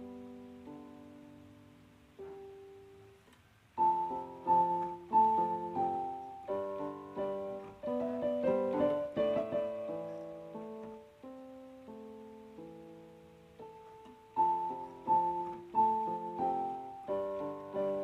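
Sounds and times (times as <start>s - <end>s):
piano music: 0.0s - 3.2s, 3.8s - 18.0s.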